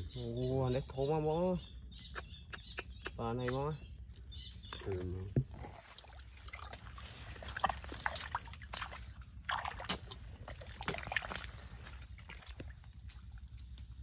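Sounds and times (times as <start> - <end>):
wet mud squelching and splashing: 4.1 - 14.0.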